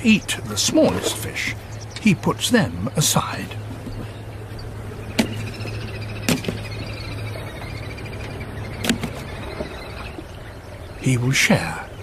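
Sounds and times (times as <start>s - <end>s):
faint high twittering: 0.0s - 12.0s
steady low hum: 0.0s - 12.0s
fish landing with knocks and slaps: 5.2s - 5.4s, 6.3s - 6.6s, 8.8s - 9.3s.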